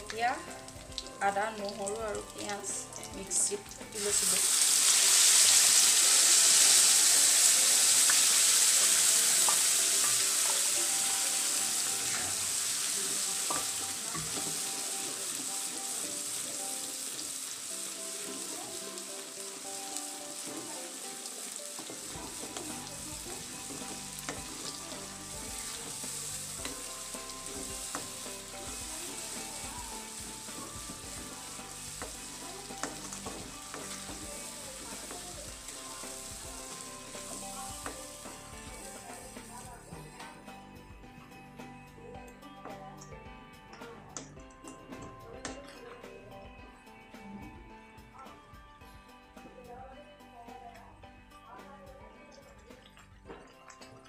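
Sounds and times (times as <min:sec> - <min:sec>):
paste sizzling in hot oil: 0:01.7 - 0:39.9.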